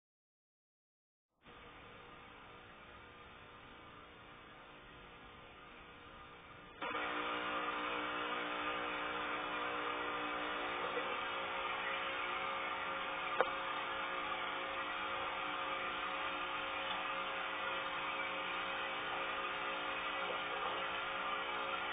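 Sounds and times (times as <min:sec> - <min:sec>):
aquarium air pump humming and bubbling: 0:05.2 - 0:21.9.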